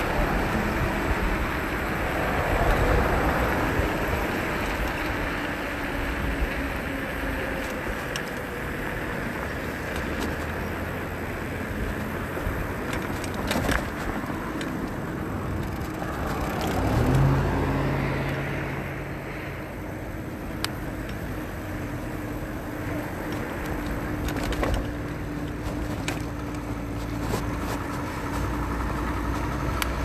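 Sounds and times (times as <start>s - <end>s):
wind rushing over microphone: 0.0s - 7.9s
car engine hum passing: 0.0s - 30.0s
road traffic passing: 0.0s - 30.0s.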